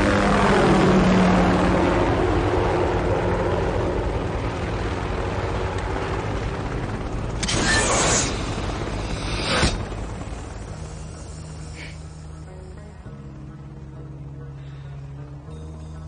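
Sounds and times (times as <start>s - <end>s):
helicopter turbine and rotor: 0.0s - 16.0s
rocket firing hissing rush: 7.4s - 10.0s.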